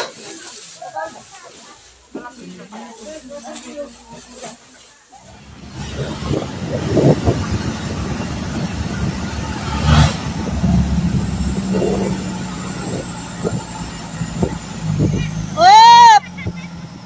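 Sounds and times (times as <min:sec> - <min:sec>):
road noise: 0:00.0 - 0:17.0
truck engine hum: 0:05.0 - 0:17.0.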